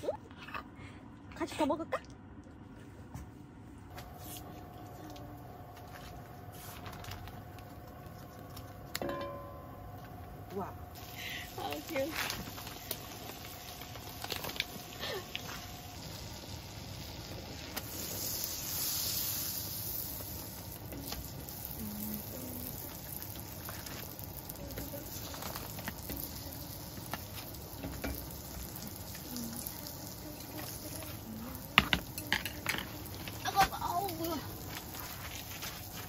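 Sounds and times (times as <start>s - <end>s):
butter sizzling on a griddle pan: 10.9s - 36.0s.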